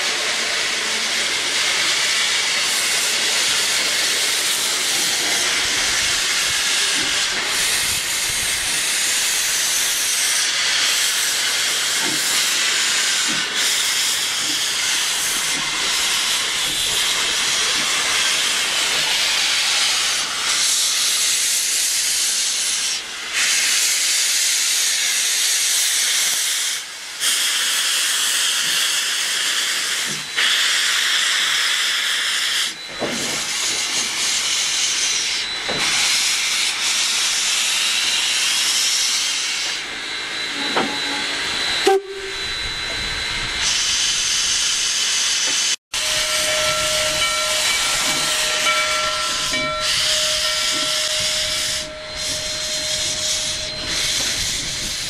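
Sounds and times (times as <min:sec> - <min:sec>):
steam locomotive hissing: 0:00.0 - 0:55.0
steady pitched tone: 0:45.9 - 0:55.0.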